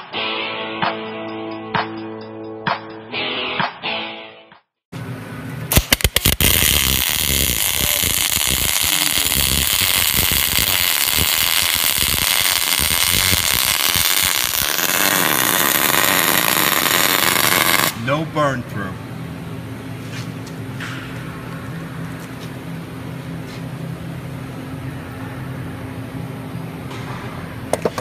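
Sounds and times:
welding arc cracks: 0:05.7 - 0:18.0
welding arc hissing: 0:05.7 - 0:18.1.

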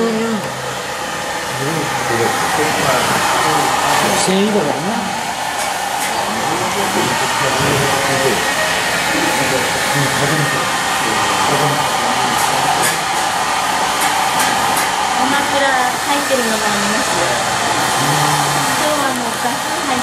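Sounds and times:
loud rushing air from blower: 0:00.0 - 0:20.0
faint voices talking: 0:01.5 - 0:13.4.

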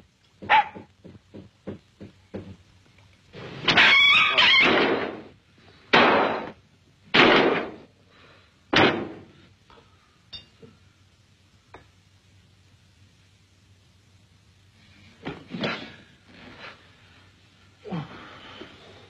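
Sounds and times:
loud crashing bangs: 0:03.7 - 0:05.3, 0:05.9 - 0:07.9, 0:08.7 - 0:09.3.

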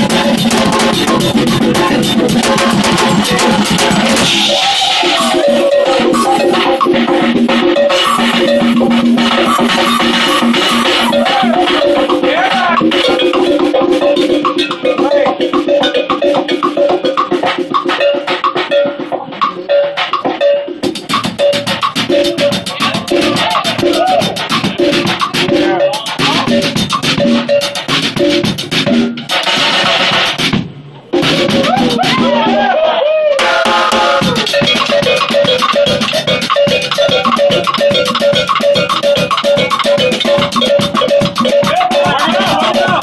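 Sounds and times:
repeating pitched note: 0:00.0 - 0:17.0, 0:33.4 - 0:43.0
fast bright ticking rhythm: 0:00.0 - 0:30.6, 0:33.4 - 0:43.0
band playing drums and percussion: 0:00.0 - 0:32.8, 0:33.4 - 0:43.0.

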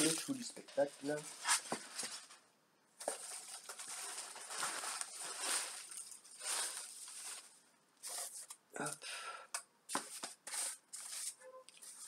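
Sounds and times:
paper wrapping rustling: 0:03.0 - 0:08.6, 0:09.9 - 0:12.0.

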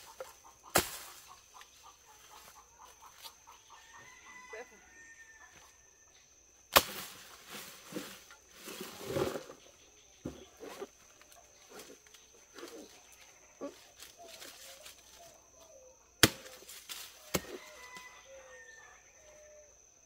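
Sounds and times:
leaves and stalks rustling: 0:00.0 - 0:04.2, 0:06.7 - 0:18.8
machete chopping plant: 0:00.1 - 0:01.4, 0:06.7 - 0:09.5, 0:16.2 - 0:18.1.

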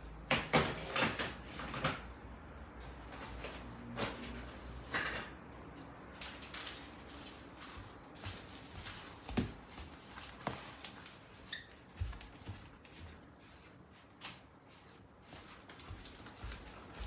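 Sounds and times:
papers rustling: 0:06.1 - 0:17.0
footsteps on wooden floor: 0:07.8 - 0:13.4, 0:15.2 - 0:17.0.

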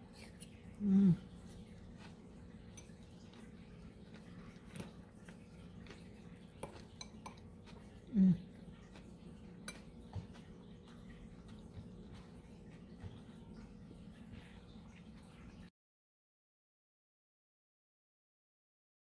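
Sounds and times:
fork stirring salad in glass bowl: 0:01.5 - 0:08.0, 0:08.6 - 0:13.8.

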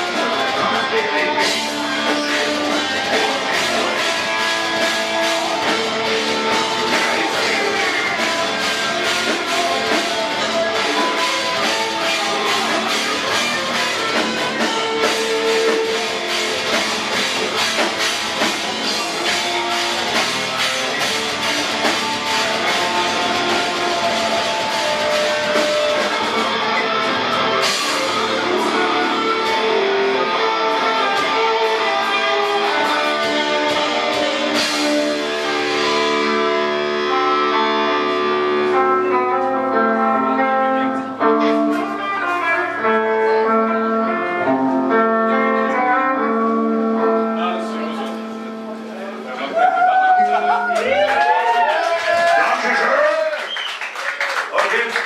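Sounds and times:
drum kit beat: 0:00.0 - 0:40.4
distorted electric guitars: 0:00.0 - 0:53.5.

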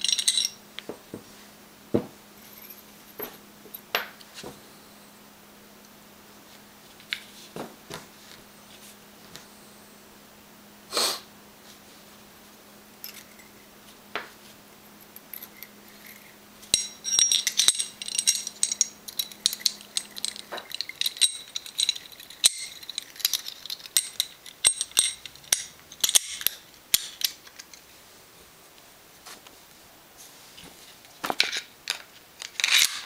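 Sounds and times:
metal gun parts clicking: 0:16.7 - 0:27.8.

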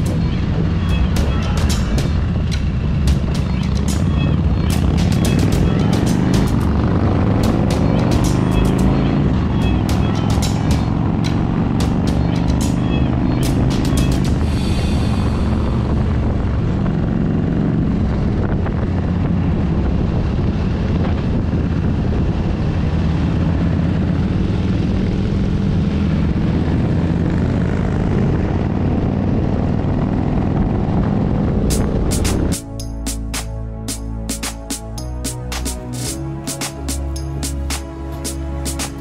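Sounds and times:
wind rush on microphone: 0:00.0 - 0:05.5, 0:14.3 - 0:32.6
motorcycle engine cruising: 0:00.0 - 0:34.8.

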